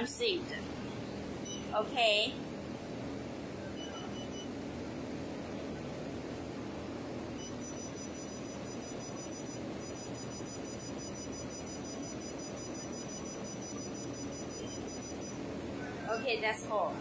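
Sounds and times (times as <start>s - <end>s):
high-pitched electronic whine: 7.4s - 15.4s.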